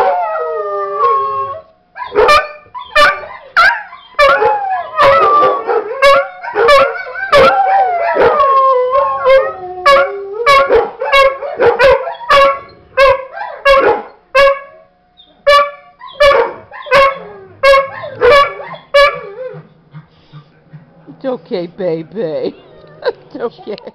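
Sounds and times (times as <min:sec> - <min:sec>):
dog howling: 0:00.0 - 0:13.8, 0:16.1 - 0:19.7
recorded dog barks from a video: 0:02.0 - 0:04.5, 0:05.6 - 0:08.4, 0:09.9 - 0:14.7, 0:15.4 - 0:19.3.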